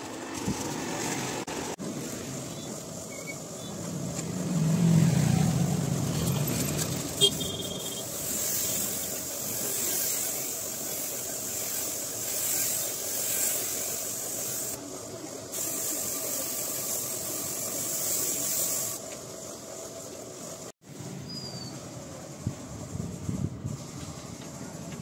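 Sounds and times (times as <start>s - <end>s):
spray gun hissing: 7.2s - 14.8s, 15.4s - 20.6s.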